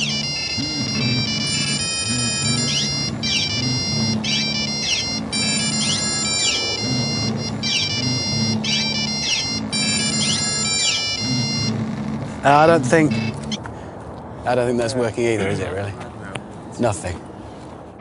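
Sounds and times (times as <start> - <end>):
mobile phones ringing: 0.0 - 13.6.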